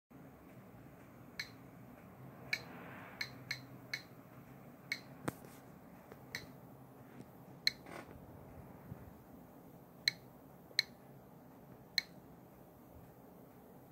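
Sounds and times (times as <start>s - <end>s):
geiger counter clicking: 1.3s - 1.8s, 2.4s - 5.2s, 10.0s - 11.0s, 11.9s - 12.3s.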